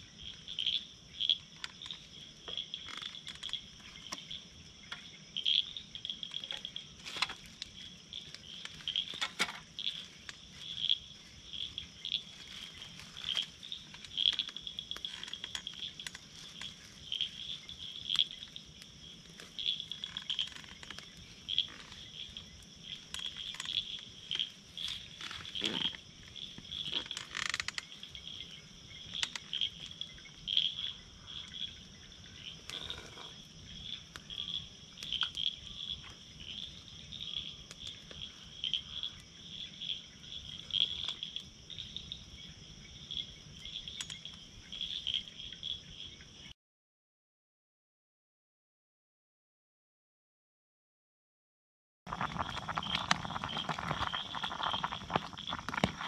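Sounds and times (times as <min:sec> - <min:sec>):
frogs and insects chorus: 0:00.0 - 0:46.6, 0:52.1 - 0:56.0
sharp clicks and crackles: 0:26.8 - 0:27.9, 0:52.1 - 0:56.0.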